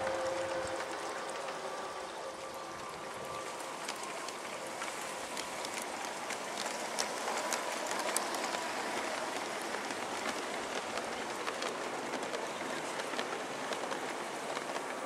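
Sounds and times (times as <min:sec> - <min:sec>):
model train rolling on track: 0:00.0 - 0:15.0.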